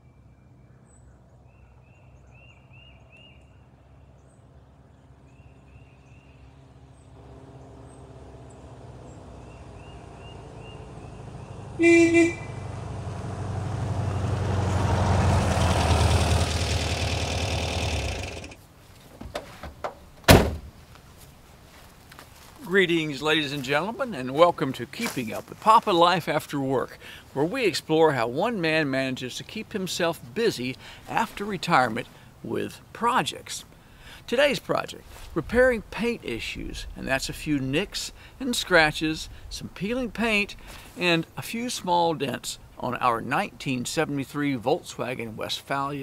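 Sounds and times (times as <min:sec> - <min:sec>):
van engine approaching: 0:00.5 - 0:18.6
short horn toots: 0:11.8 - 0:12.7.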